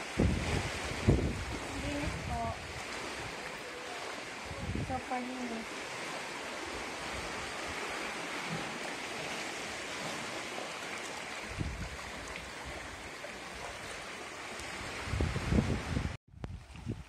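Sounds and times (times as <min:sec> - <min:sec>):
wind rumble on microphone: 0:00.0 - 0:03.6, 0:04.3 - 0:08.8, 0:11.4 - 0:17.0
small waves on beach: 0:00.0 - 0:17.0.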